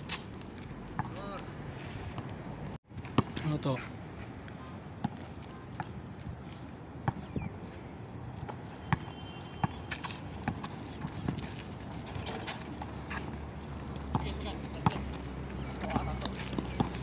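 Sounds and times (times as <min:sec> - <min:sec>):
basketball bouncing on asphalt: 0:01.0 - 0:01.3, 0:02.9 - 0:03.4, 0:05.0 - 0:06.0, 0:07.0 - 0:07.4, 0:08.4 - 0:17.0.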